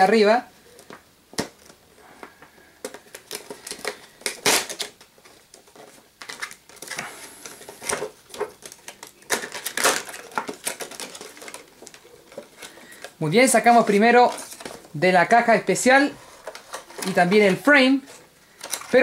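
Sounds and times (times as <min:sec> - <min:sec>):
plastic box clicks and crinkles: 0:00.7 - 0:14.9, 0:18.5 - 0:19.0
plastic clatters: 0:00.8 - 0:15.0, 0:16.3 - 0:19.0.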